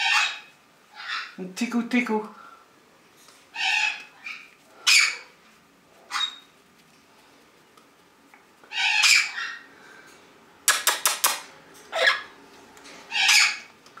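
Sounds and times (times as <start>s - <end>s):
parrot squawking: 0.0s - 1.4s, 3.5s - 5.3s, 6.1s - 6.5s, 8.7s - 9.7s, 10.8s - 12.3s, 13.1s - 13.7s
parrot clicking: 10.7s - 11.5s.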